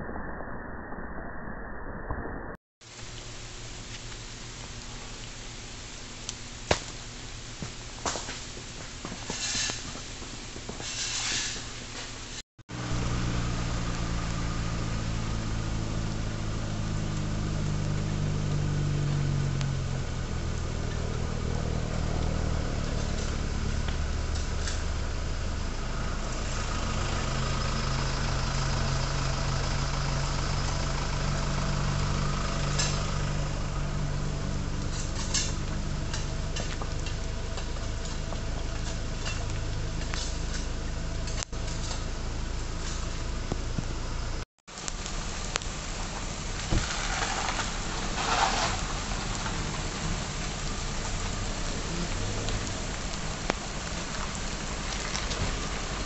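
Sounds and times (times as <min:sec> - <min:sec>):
rain hissing: 0:02.8 - 0:56.0
vehicle engine idling: 0:12.7 - 0:56.0.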